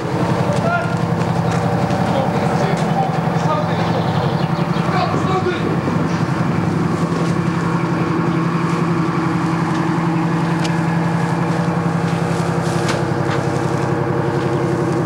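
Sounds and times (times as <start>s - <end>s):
diesel engine idling: 0.0s - 15.0s.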